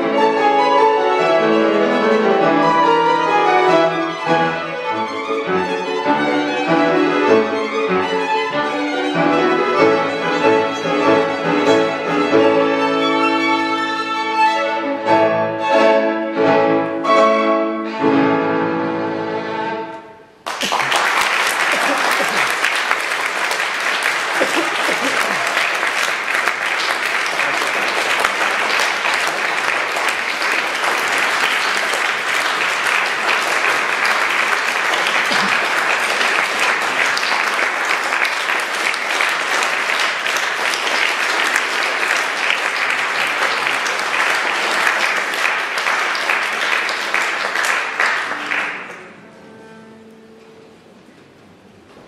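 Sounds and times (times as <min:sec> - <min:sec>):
audience applauding: 0:20.4 - 0:49.2.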